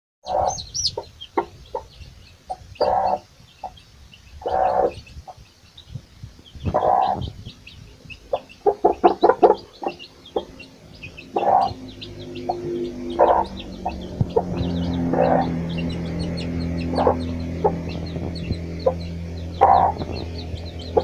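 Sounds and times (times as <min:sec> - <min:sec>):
chicks peeping: 0:00.2 - 0:21.0
hen clucking: 0:00.2 - 0:21.0.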